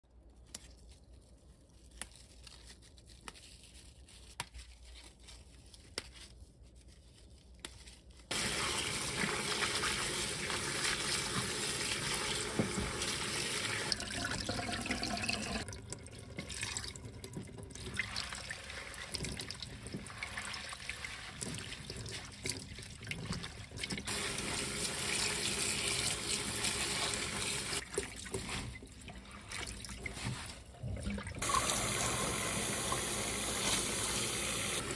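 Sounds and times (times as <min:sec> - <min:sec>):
hands swishing leaves in water: 0:17.8 - 0:25.3, 0:26.0 - 0:34.9.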